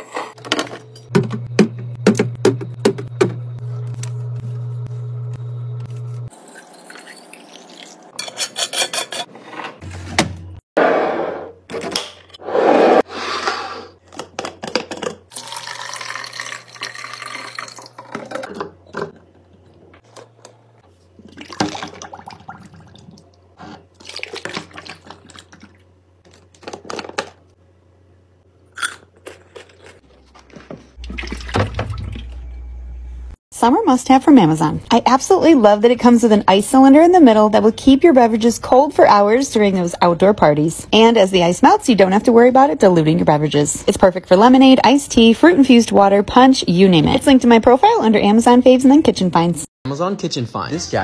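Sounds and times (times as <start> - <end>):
liquid pouring into jars: 15.3 - 18.4.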